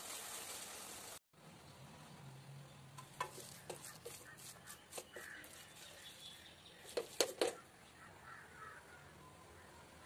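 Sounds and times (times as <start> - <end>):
wooden spatula scraping metal pan: 3.0 - 6.2.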